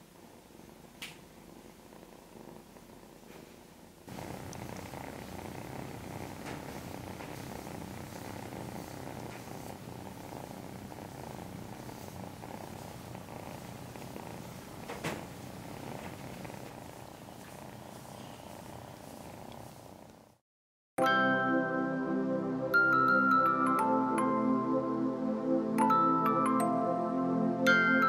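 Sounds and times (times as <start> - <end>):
kitten purring: 0.0 - 20.4.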